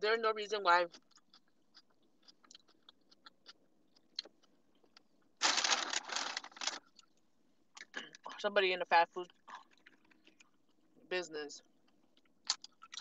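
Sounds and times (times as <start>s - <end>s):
paper bag rustling: 5.4s - 6.8s.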